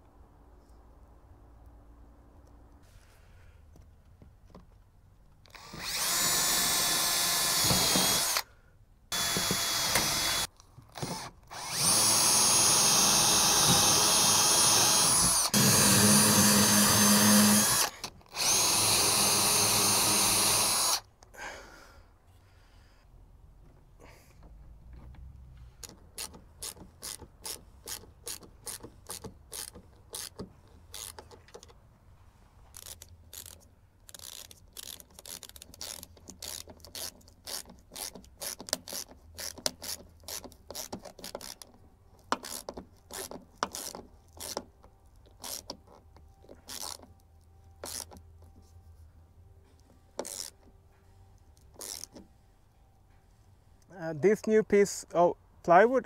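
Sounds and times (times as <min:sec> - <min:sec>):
ratchet screwdriver clicking: 0:25.8 - 0:31.6, 0:47.8 - 0:48.2, 0:50.2 - 0:50.6, 0:51.8 - 0:52.2.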